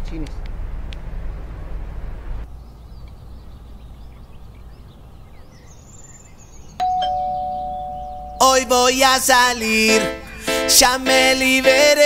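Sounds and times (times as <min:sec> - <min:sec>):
low steady rumble: 0:00.0 - 0:04.5
faint bird chirps: 0:02.6 - 0:08.7.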